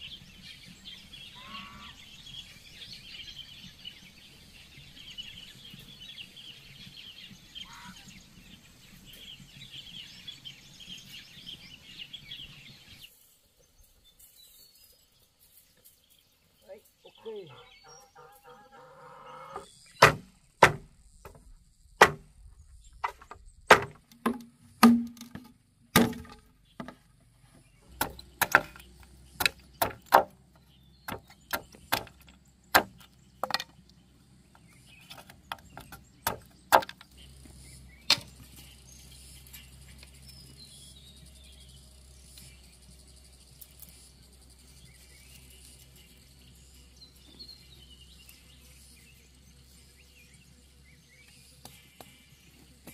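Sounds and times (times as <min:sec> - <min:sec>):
crickets chirring: 0:13.1 - 0:25.6, 0:26.2 - 0:52.9
machete chopping bamboo: 0:20.0 - 0:21.4, 0:22.0 - 0:22.3, 0:23.0 - 0:27.0, 0:27.9 - 0:30.4, 0:31.0 - 0:33.7, 0:35.2 - 0:37.1.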